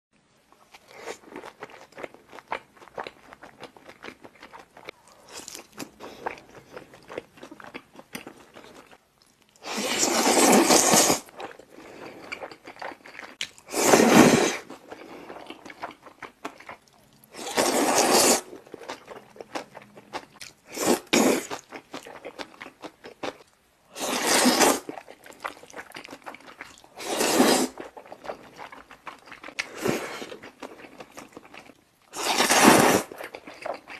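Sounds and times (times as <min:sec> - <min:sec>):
loud slurping of noodles: 0:09.6 - 0:11.3, 0:13.7 - 0:14.7, 0:17.4 - 0:18.5, 0:20.7 - 0:21.5, 0:24.0 - 0:24.9, 0:27.0 - 0:27.8, 0:32.2 - 0:33.2
wet chewing and smacking: 0:33.1 - 0:33.9.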